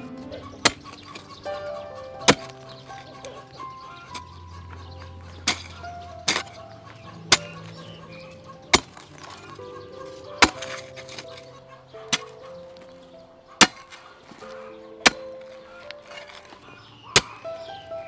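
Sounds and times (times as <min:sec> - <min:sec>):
soft background music: 0:00.0 - 0:18.0
hoe chopping into soil: 0:05.2 - 0:06.6, 0:07.3 - 0:08.0, 0:08.7 - 0:09.6, 0:10.4 - 0:11.5, 0:12.1 - 0:12.4, 0:13.6 - 0:17.4.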